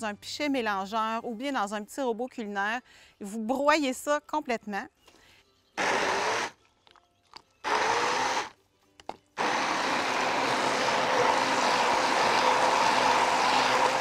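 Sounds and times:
blender motor spinning: 5.8s - 6.6s, 7.6s - 8.5s, 9.4s - 14.0s.

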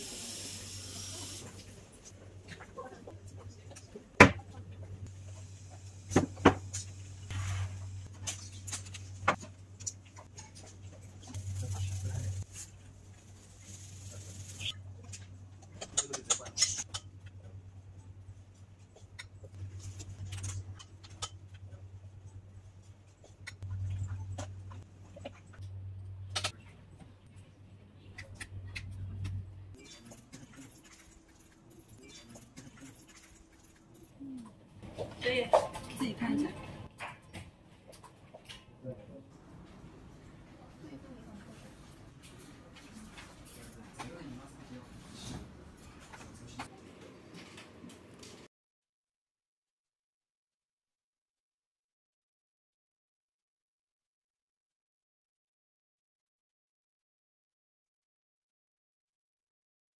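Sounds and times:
steady low hum: 16.9s - 35.2s.

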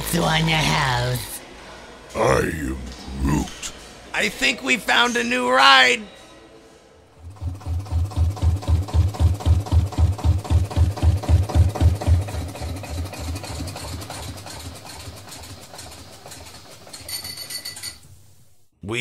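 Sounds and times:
small engine puttering: 7.2s - 17.5s.

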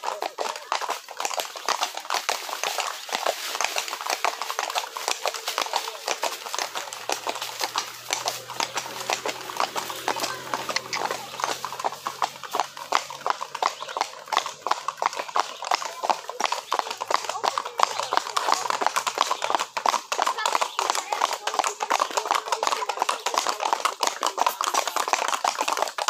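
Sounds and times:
hooves clip-clopping on pavement: 0.0s - 26.0s.

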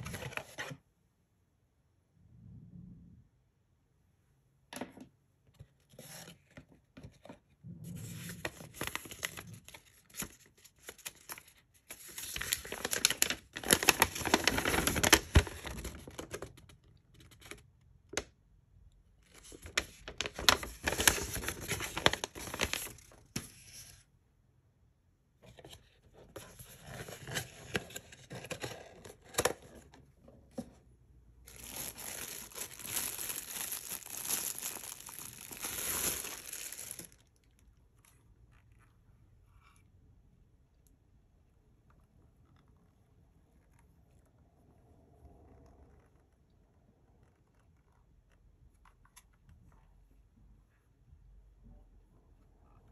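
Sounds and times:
plastic bag crinkling: 12.1s - 16.4s, 19.6s - 23.1s, 31.5s - 37.6s.

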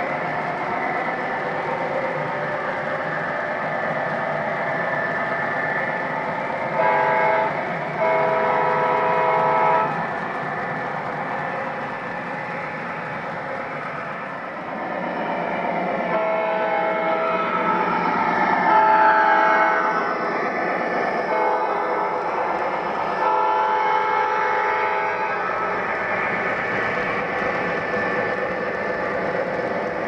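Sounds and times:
model train wheels rumbling on rail: 0.0s - 30.0s
electronic train horn: 6.7s - 10.0s, 16.1s - 17.6s, 18.6s - 20.0s, 21.3s - 22.1s, 23.1s - 25.6s.

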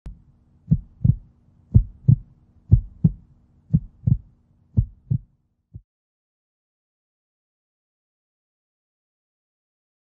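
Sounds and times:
heartbeat thumps: 0.1s - 5.3s
faint steady hum: 0.1s - 5.8s.

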